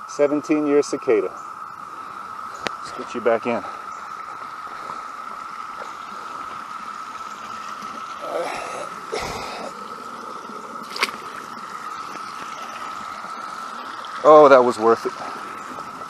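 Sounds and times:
cicada chorus drone: 0:00.0 - 0:16.0
trickling creek: 0:00.0 - 0:16.0
fish splashing into water: 0:07.2 - 0:14.2.

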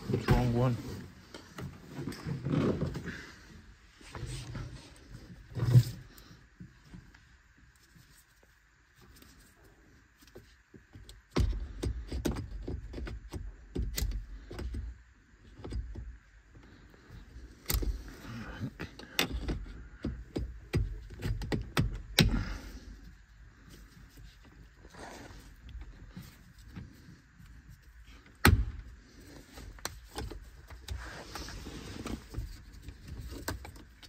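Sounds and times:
gear lever clicks and clunks: 0:11.0 - 0:14.9, 0:17.6 - 0:22.6, 0:28.2 - 0:28.9.

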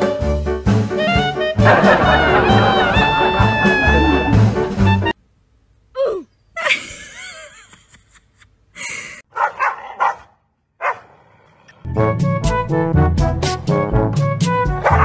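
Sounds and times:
background music: 0:00.0 - 0:05.2, 0:11.8 - 0:15.0
short dog barks: 0:09.3 - 0:11.1.

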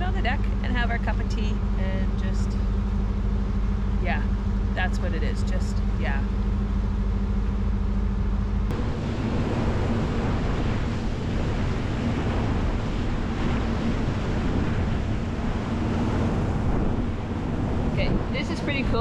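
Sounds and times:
boat engine droning: 0:00.0 - 0:19.0
wind and water rushing: 0:08.7 - 0:19.0.

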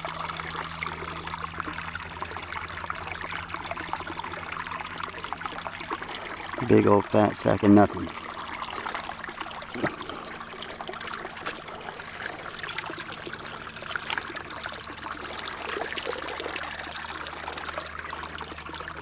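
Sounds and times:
stream water splashing: 0:00.0 - 0:19.0
water pouring through fabric: 0:00.0 - 0:19.0.

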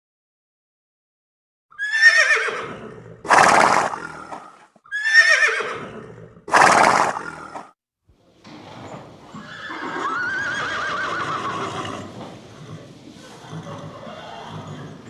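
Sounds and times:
horse whinnying: 0:01.7 - 0:07.7, 0:08.9 - 0:15.0.

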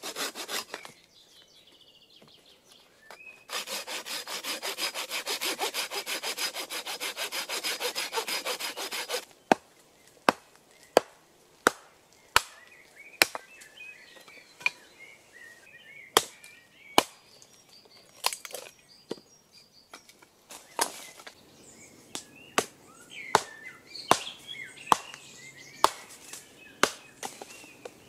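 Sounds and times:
hatchet chopping wood: 0:00.0 - 0:00.9, 0:03.5 - 0:13.4, 0:16.2 - 0:16.4, 0:17.0 - 0:17.2, 0:23.3 - 0:24.3, 0:24.9 - 0:25.2, 0:25.8 - 0:26.2, 0:26.8 - 0:27.5
birds chirping: 0:00.0 - 0:11.0, 0:12.2 - 0:28.0.

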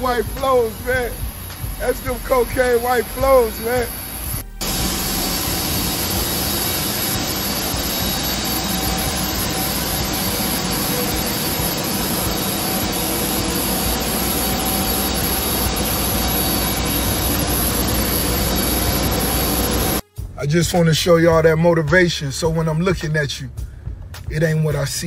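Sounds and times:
faint high whine: 0:00.0 - 0:20.0
jet engines rushing: 0:00.0 - 0:20.0.

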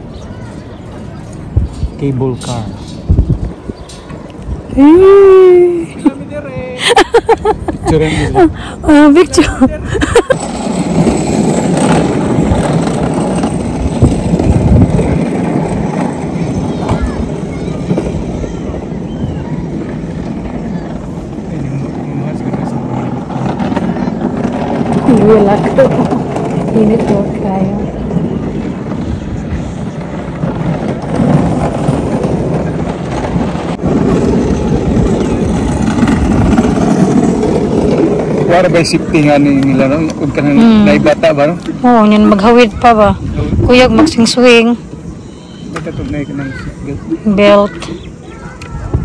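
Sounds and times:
wind buffeting microphone: 0:00.0 - 0:49.0
low rumble: 0:07.4 - 0:45.2.

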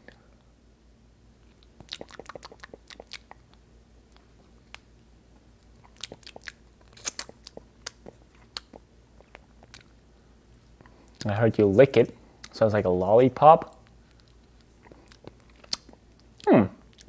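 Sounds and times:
wet mouth clicks and smacks: 0:01.5 - 0:04.9, 0:05.9 - 0:09.9, 0:13.7 - 0:17.0.

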